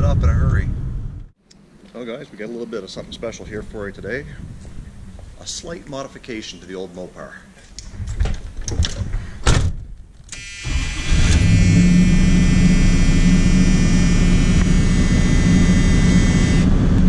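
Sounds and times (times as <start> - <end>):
thump: 9.4 - 9.9
car engine starting and running: 10.6 - 17.0.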